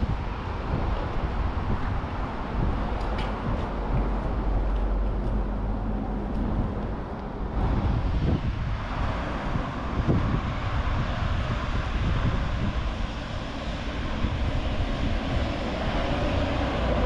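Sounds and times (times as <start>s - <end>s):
traffic rumble: 0.0s - 17.0s
wind buffeting microphone: 0.0s - 17.0s.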